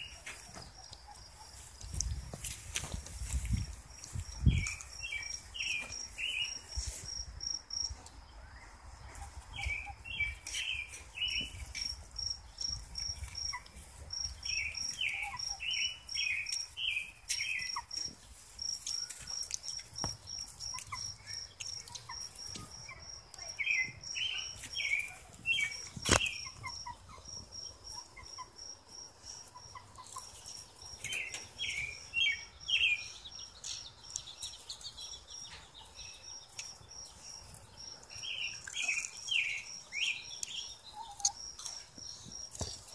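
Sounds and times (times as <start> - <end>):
cricket chirping: 3.2 - 42.9.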